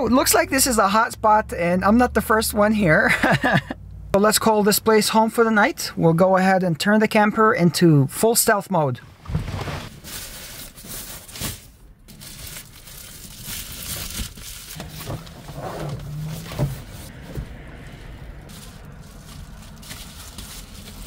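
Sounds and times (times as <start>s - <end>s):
foil covers crinkling and rustling: 9.8s - 15.4s, 18.5s - 21.0s.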